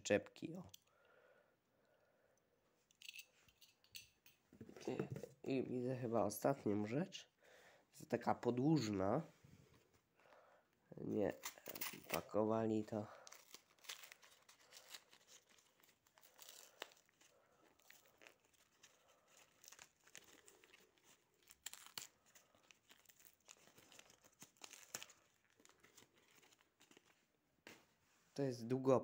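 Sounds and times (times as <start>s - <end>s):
wrapper crinkling and tearing: 11.3s - 27.2s.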